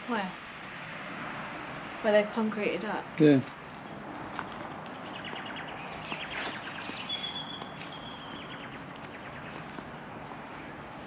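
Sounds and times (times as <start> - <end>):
background hiss: 0.0 - 11.0
small birds chirping: 0.0 - 11.0
bird trill: 0.4 - 2.1, 4.5 - 10.9.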